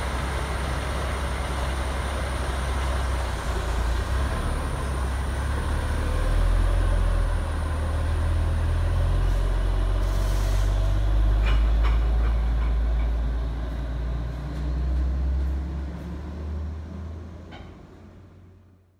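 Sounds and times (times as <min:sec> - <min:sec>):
diesel truck engine idling: 0:00.0 - 0:14.4
air hiss: 0:10.0 - 0:10.8.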